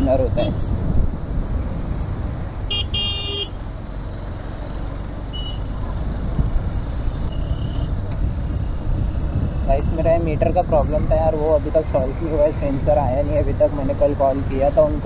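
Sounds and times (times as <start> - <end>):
wind and road rumble: 0.0 - 15.0
high-pitched vehicle horn honking: 2.7 - 3.6, 5.3 - 5.7.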